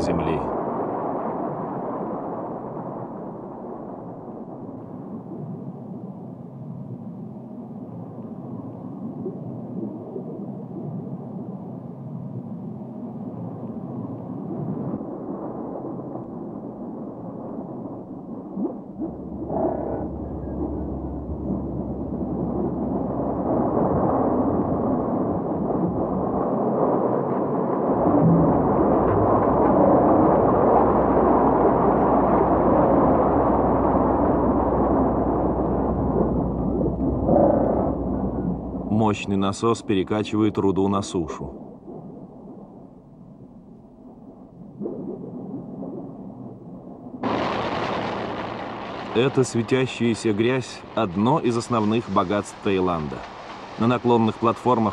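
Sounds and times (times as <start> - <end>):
deep hum: 17.8 - 26.5, 27.8 - 39.9, 41.6 - 54.9
dredge cutter rumbling churn: 47.2 - 54.9.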